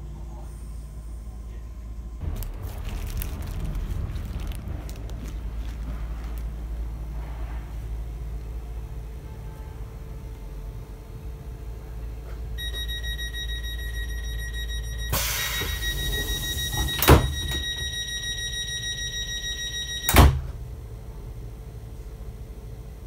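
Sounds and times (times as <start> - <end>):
train door warning tone: 12.6 - 20.6
train doors thudding shut: 15.2 - 17.8, 20.1 - 20.6.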